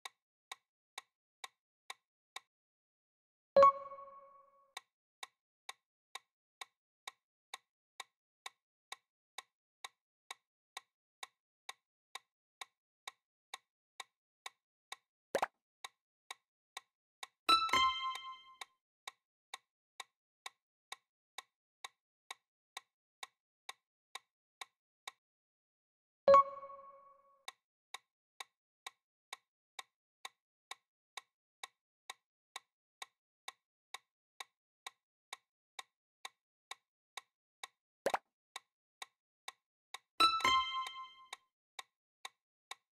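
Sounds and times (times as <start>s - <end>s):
countdown timer ticks: 3.6s - 4.8s, 17.5s - 18.7s, 26.3s - 30.4s, 40.2s - 41.4s
timer ticking clicks: 3.6s - 6.7s, 7.5s - 18.7s, 26.3s - 41.4s
chime: 17.5s - 18.5s, 40.2s - 41.2s.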